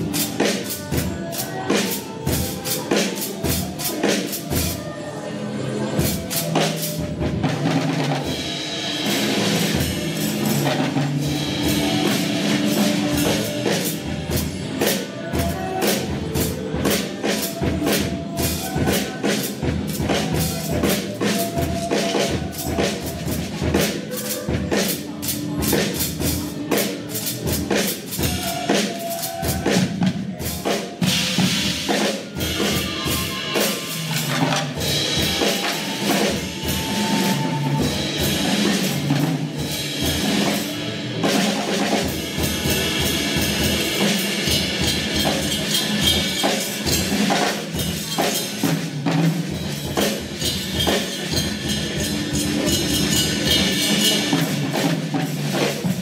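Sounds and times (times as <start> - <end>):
drum kit playing: 0.0 - 5.0, 5.9 - 56.0.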